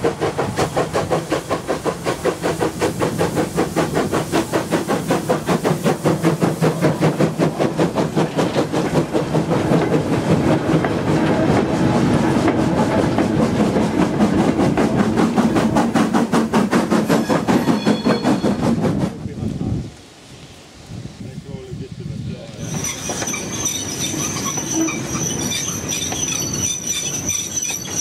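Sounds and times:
steam locomotive beat: 0:00.0 - 0:19.9
wheels rumbling on rails: 0:00.0 - 0:28.0.

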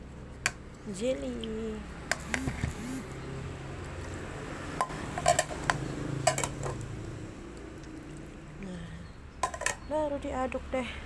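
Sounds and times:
kitchenware clinking on plastic bowl: 0:04.8 - 0:06.8, 0:09.4 - 0:09.9.

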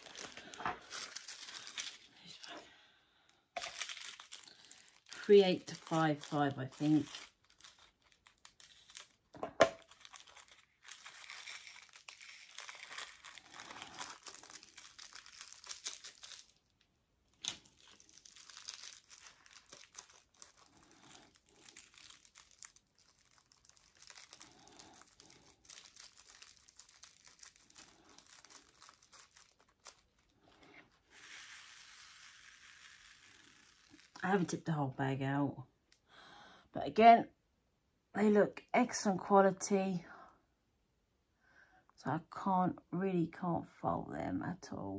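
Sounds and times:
plastic bag crinkling: 0:00.0 - 0:02.7, 0:03.5 - 0:34.7
beads pouring into plastic tray: 0:03.6 - 0:09.1, 0:31.0 - 0:34.2.

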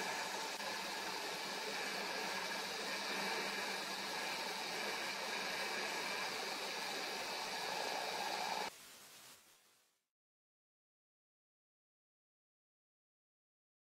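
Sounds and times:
faint hum of steady tones: 0:00.0 - 0:09.6
steady hiss: 0:00.0 - 0:10.1.

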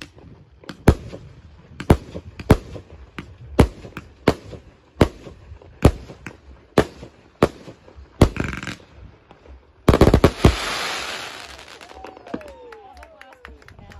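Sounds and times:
fireworks bangs: 0:00.0 - 0:12.6
fireworks hissing crackle: 0:05.5 - 0:12.4.

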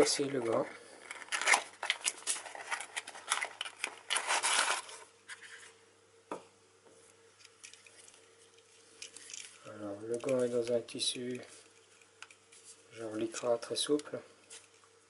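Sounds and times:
cardboard box scraping and rustling: 0:04.2 - 0:05.0.

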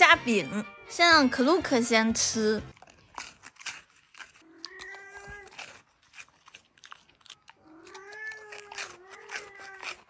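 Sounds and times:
dog whining: 0:04.4 - 0:05.8, 0:07.3 - 0:10.0.

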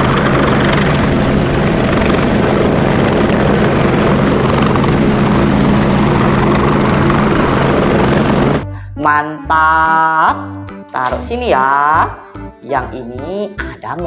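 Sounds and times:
helicopter hovering: 0:00.0 - 0:08.7.

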